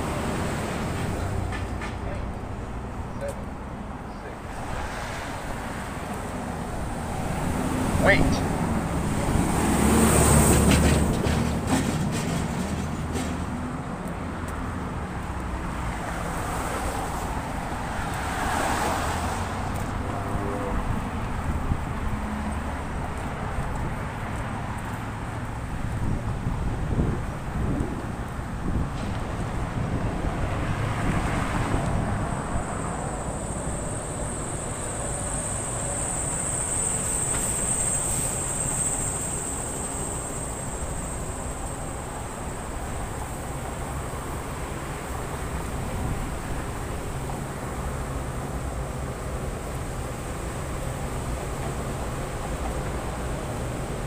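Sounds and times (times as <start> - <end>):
heavy truck engine: 0.0 - 18.1
passing cars: 0.0 - 54.0
street traffic rumble: 0.0 - 54.0.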